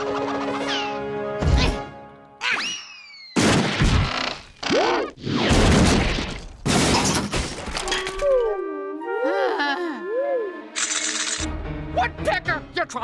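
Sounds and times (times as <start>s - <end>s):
background music: 0.0s - 2.8s, 7.8s - 13.0s.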